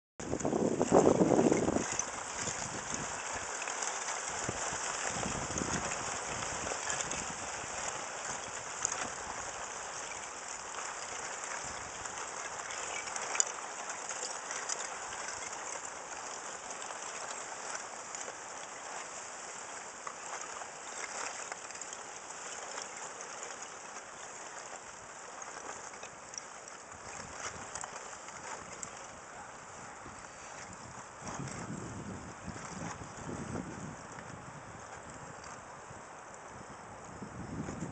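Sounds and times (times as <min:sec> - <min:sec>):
ice crackling and grinding: 0:00.4 - 0:29.2.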